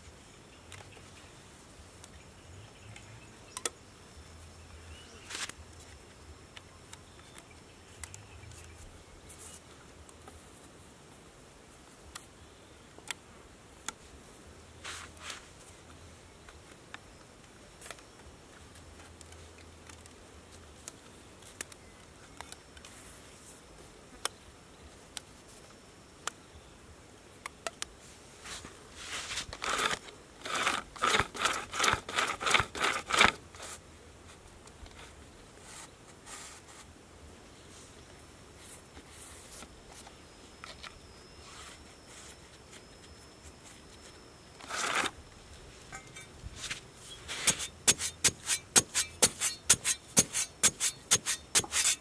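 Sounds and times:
repeated scraping strokes: 14.8s - 15.7s, 28.0s - 33.8s, 34.9s - 36.9s, 41.4s - 45.2s, 45.8s - 52.0s.

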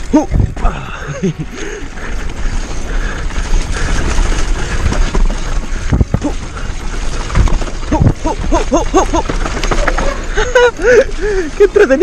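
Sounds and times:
bike rattling over dirt: 0.0s - 12.0s
wind on microphone: 4.6s - 6.4s.

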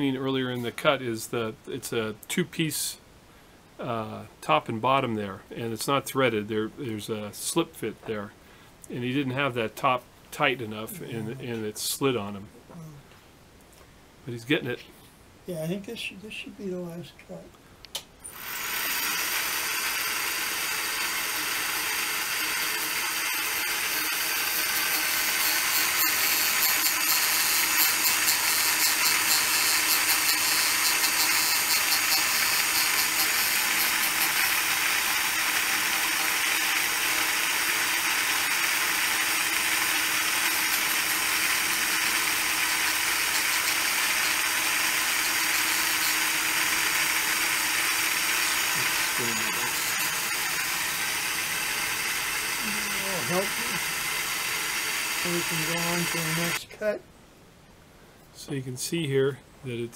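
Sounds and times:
lathe cutter whirring: 18.3s - 56.6s.

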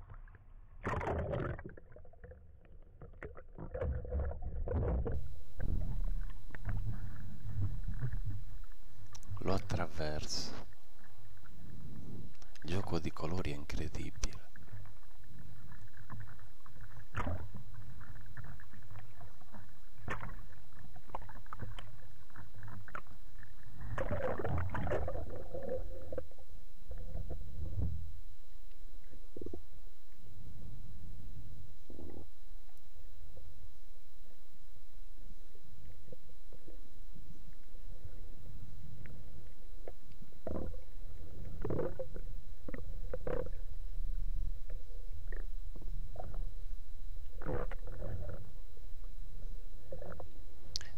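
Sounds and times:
water gurgling and sloshing: 0.0s - 50.8s
underwater bubbling: 0.8s - 50.9s
steady low rumble: 5.1s - 13.2s
water sloshing and splashing: 14.5s - 26.3s.

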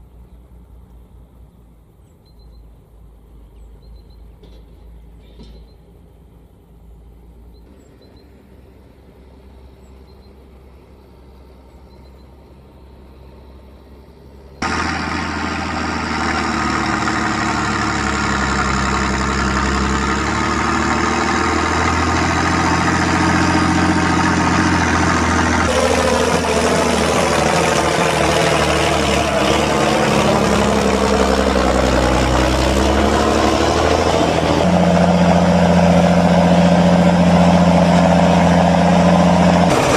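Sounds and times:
tractor diesel engine under load: 12.6s - 39.9s.

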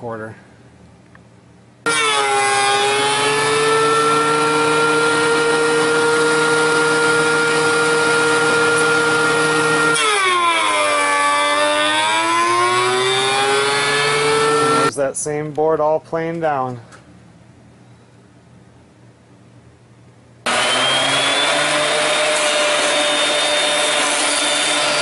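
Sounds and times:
thickness planer whining: 1.9s - 14.9s, 20.5s - 25.0s.

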